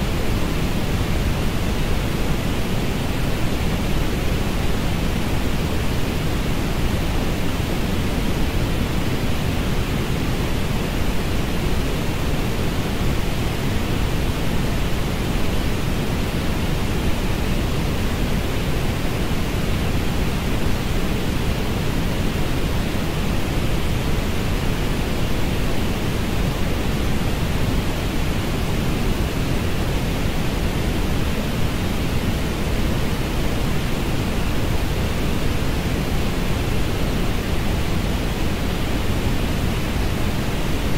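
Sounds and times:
steady low-heavy hiss: 0.0s - 40.9s.

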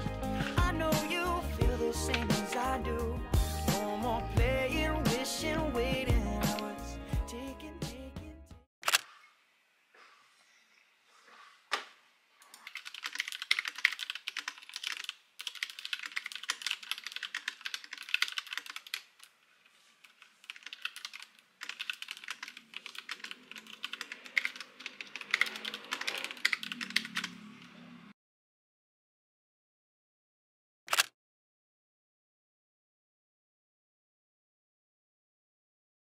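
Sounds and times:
mechanical keyboard typing: 12.5s - 19.3s, 20.1s - 27.4s.

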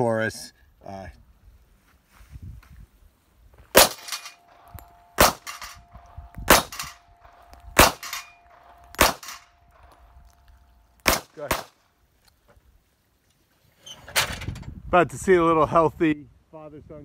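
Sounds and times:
pistol shots: 3.7s - 9.9s, 11.0s - 11.8s
steel plate target ringing: 3.8s - 9.9s.

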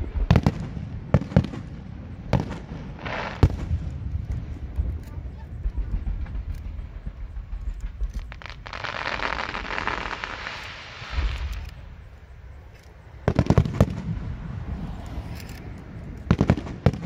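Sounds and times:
sharp loud firework bangs: 0.0s - 4.1s, 5.5s - 11.6s
dull low firework thumps: 0.0s - 11.9s
dense firework hiss: 2.2s - 4.0s, 5.3s - 12.1s.

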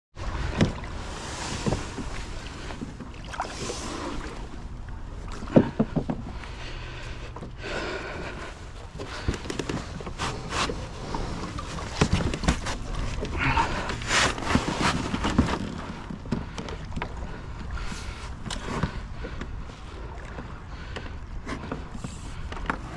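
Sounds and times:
knocks and scrapes on plastic kayak: 0.2s - 4.6s, 5.2s - 7.6s, 8.2s - 19.7s, 20.9s - 22.9s.

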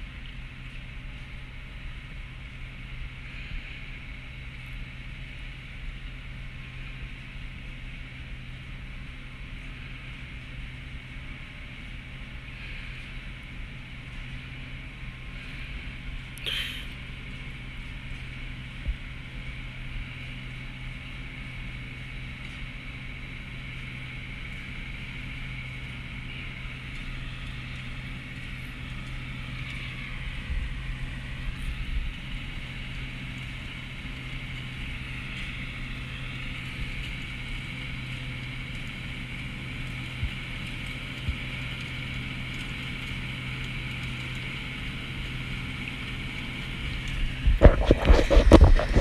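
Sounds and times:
tractor diesel engine under load: 0.0s - 49.0s
mechanical whir: 47.1s - 49.0s.

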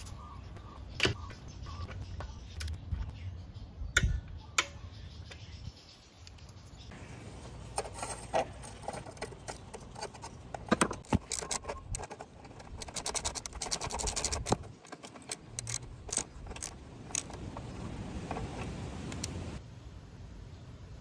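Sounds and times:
metallic clicks and clinks: 7.8s - 17.7s
ratchet clicking: 11.0s - 17.4s.

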